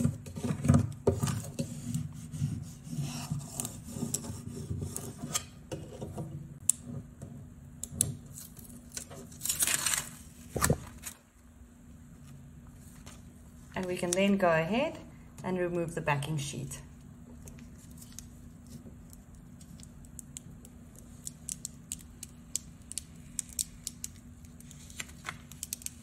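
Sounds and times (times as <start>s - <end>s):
plastic sheet rustling: 9.2s - 11.2s.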